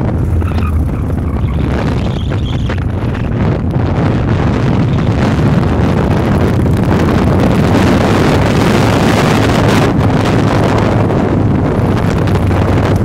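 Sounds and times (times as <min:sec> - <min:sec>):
motorcycle engine cruising: 0:00.0 - 0:13.0
wind noise on microphone: 0:00.0 - 0:13.0.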